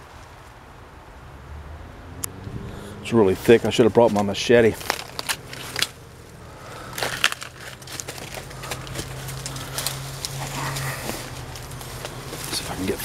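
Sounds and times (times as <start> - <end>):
dry leaves and twigs crunching underfoot: 3.2 - 13.0.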